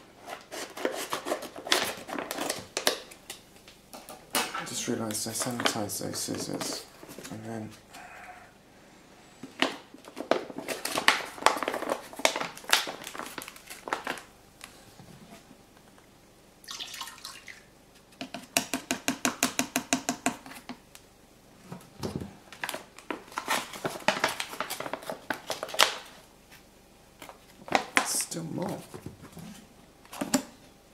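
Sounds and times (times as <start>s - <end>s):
crinkling of yeast pack: 4.7s - 7.5s, 9.7s - 14.3s, 22.5s - 26.2s.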